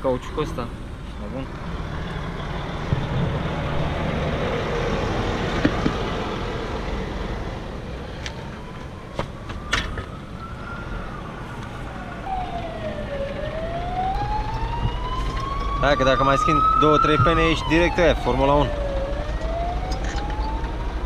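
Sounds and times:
road traffic noise: 0:00.0 - 0:21.0
siren wailing: 0:08.2 - 0:21.0.

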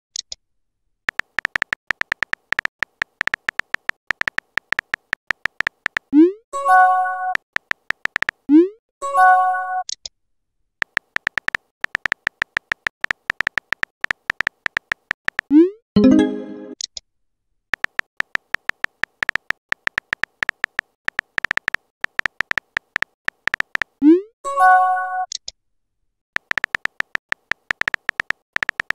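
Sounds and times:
keyboard tap clicks: 0:01.1 - 0:06.1, 0:07.6 - 0:08.4, 0:10.8 - 0:15.5, 0:17.8 - 0:24.0, 0:26.4 - 0:28.9.

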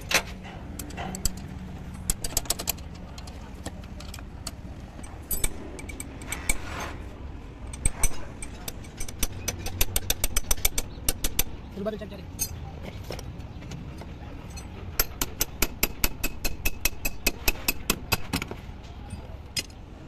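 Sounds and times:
hand tools clinking on metal: 0:00.0 - 0:06.6, 0:07.7 - 0:11.5, 0:12.3 - 0:12.7.

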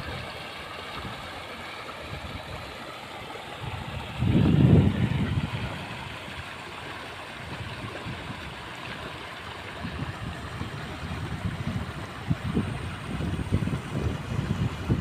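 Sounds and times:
rushing floodwater: 0:00.0 - 0:15.0
wind buffeting microphone: 0:03.6 - 0:06.4, 0:07.4 - 0:08.9, 0:09.6 - 0:15.0.

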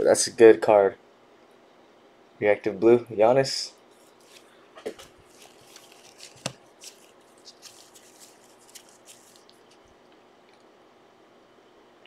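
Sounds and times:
trading cards rustling and clicking: 0:04.0 - 0:09.9.

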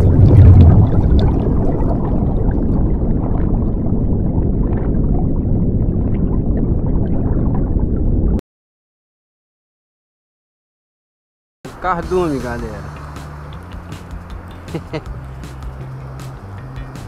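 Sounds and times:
deep gurgling rumble: 0:00.0 - 0:08.4, 0:11.9 - 0:17.0
underwater bubbling: 0:00.0 - 0:08.4, 0:12.1 - 0:17.0.

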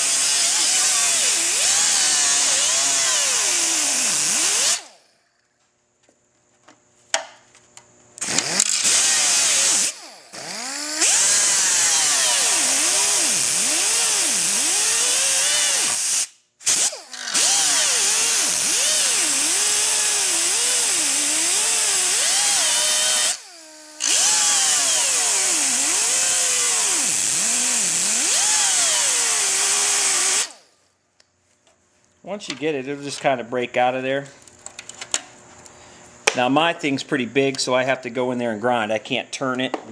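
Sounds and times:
pneumatic cut-off tool whining: 0:00.0 - 0:05.2, 0:08.2 - 0:30.8.

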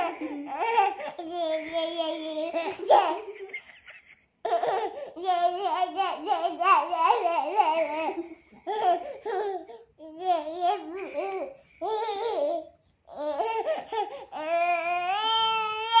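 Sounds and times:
toddler laughing and babbling: 0:00.0 - 0:03.4, 0:04.5 - 0:16.0.

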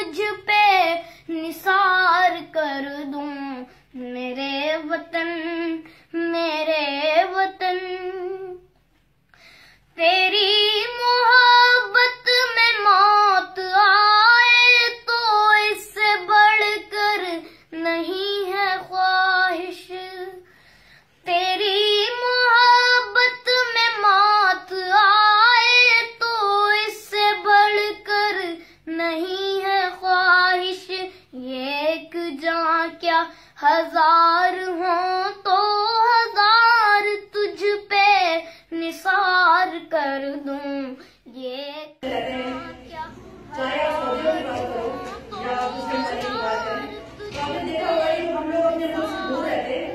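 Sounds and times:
high voice singing solo: 0:42.0 - 0:49.9.

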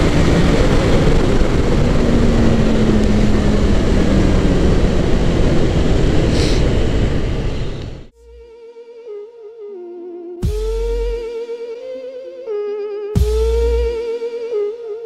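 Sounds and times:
motorcycle engine cruising: 0:00.0 - 0:08.1
wind rush: 0:00.0 - 0:08.1.

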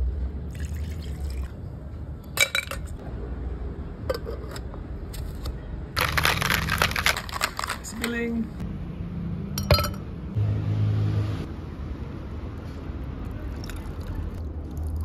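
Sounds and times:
ice rattling in shaker: 0:06.0 - 0:08.0.

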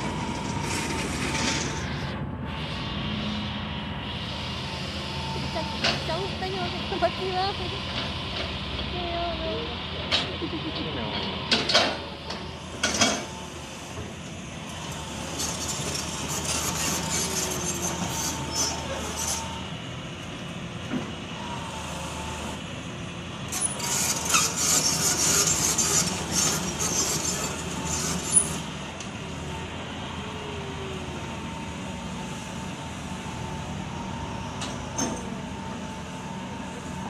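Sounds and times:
steel tracks squealing and clattering: 0:00.0 - 0:10.3, 0:11.1 - 0:20.0, 0:23.4 - 0:29.8
excavator diesel engine running: 0:00.0 - 0:37.0.

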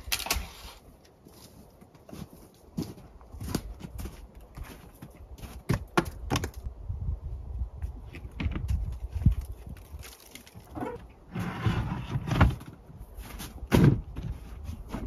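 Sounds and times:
logs knocking and thudding: 0:03.4 - 0:06.7, 0:12.2 - 0:15.0.

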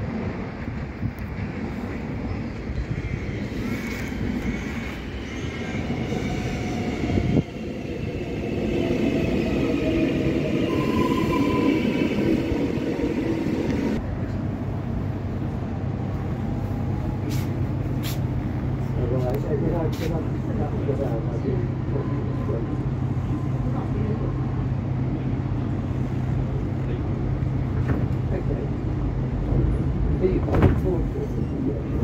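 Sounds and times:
electric train braking: 0:08.3 - 0:14.0.

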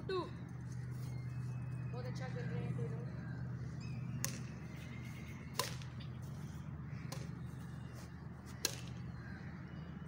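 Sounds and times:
steady low hum: 0:00.0 - 0:10.0
racket hitting shuttlecock: 0:05.6 - 0:05.9, 0:08.6 - 0:09.0.

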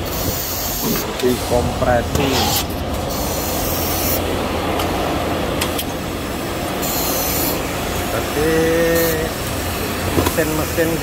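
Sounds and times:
sharp air hiss bursts: 0:00.0 - 0:04.2.

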